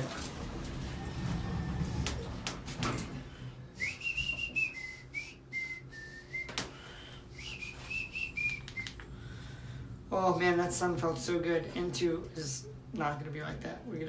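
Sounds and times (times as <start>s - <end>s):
person whistling a tune: 3.8s - 9.0s.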